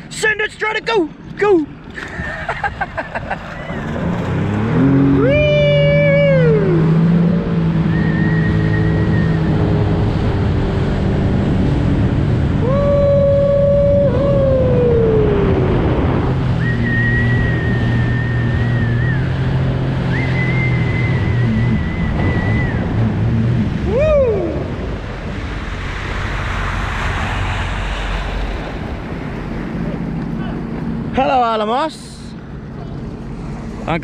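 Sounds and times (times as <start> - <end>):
jet ski engine revving: 1.9 - 31.9
high whine: 11.3 - 34.0.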